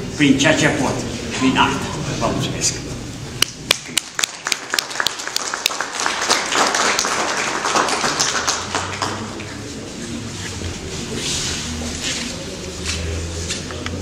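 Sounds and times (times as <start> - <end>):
audience applauding: 3.7 - 9.7.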